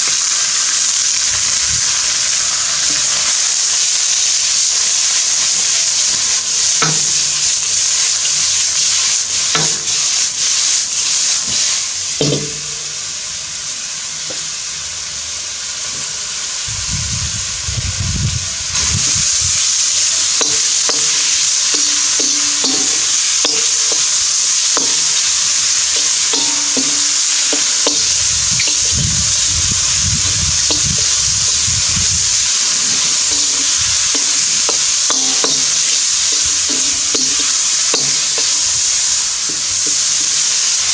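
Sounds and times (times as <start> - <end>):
food sizzling in a wok: 0.0 - 40.9
spatula scraping a wok: 5.2 - 12.5, 18.8 - 40.9.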